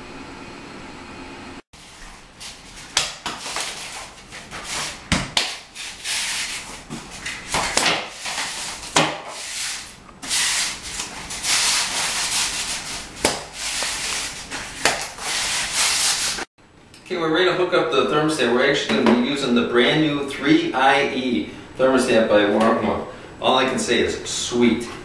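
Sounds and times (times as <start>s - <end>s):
scraping on tile: 1.9s - 16.5s.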